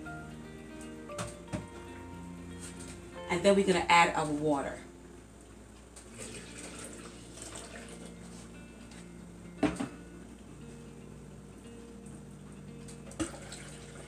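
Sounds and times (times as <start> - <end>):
water trickling into blender jar: 6.1 - 8.1, 13.2 - 14.0.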